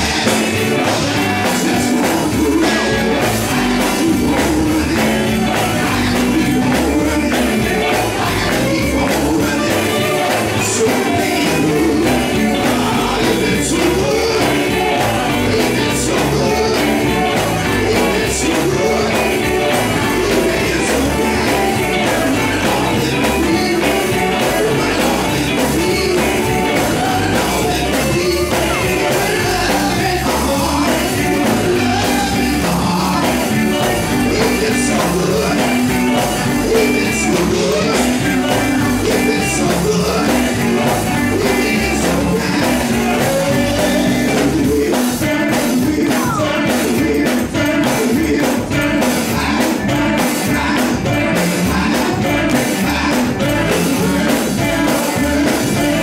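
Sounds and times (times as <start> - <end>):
backing singers: 0.0 - 56.0
band with guitar: 0.0 - 56.0
lead singer on microphone: 0.0 - 56.0.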